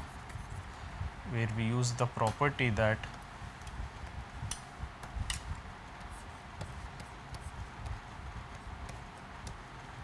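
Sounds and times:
low steady hum: 0:00.0 - 0:10.0
stylus tapping on pen tablet: 0:03.1 - 0:09.9.

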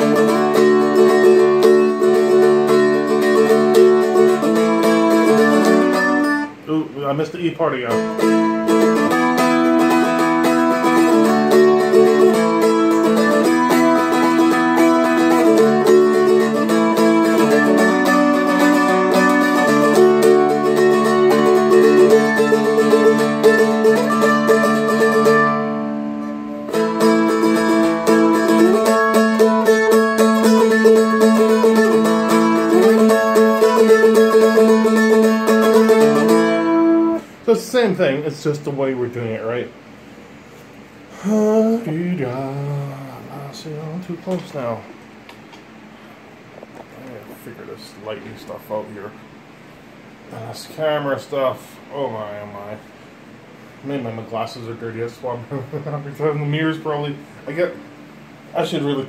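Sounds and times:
picked string melody: 0:00.0 - 0:06.6, 0:07.7 - 0:37.3.

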